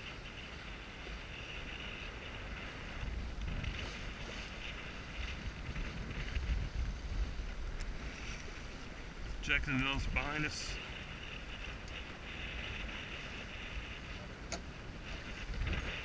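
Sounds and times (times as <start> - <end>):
wind buffeting microphone: 0.0 - 16.0
water hissing along hull: 10.0 - 16.0.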